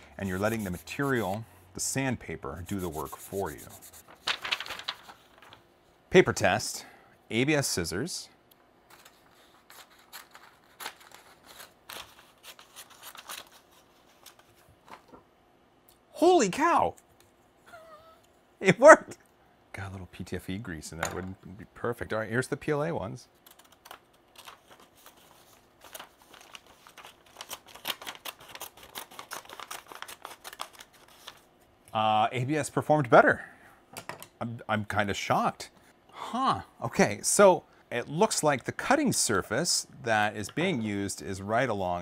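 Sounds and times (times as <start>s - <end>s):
paper crinkling: 2.7s - 5.6s, 8.9s - 15.2s, 23.4s - 31.5s.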